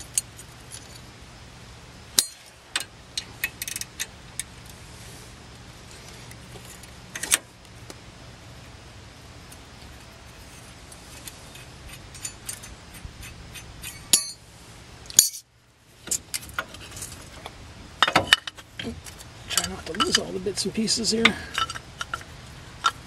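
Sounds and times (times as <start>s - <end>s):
metal brake hardware clinking: 2.2s - 2.5s, 12.1s - 14.4s, 15.1s - 15.4s, 18.0s - 20.4s, 21.1s - 23.0s.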